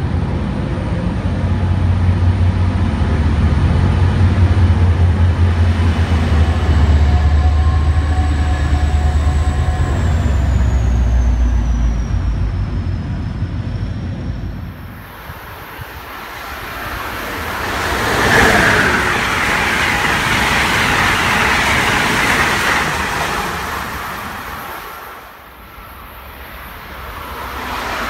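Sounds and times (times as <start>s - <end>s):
locomotive engine drone: 0.0s - 28.0s
train wheels on rails: 0.0s - 28.0s
high whine sliding down: 3.4s - 28.0s.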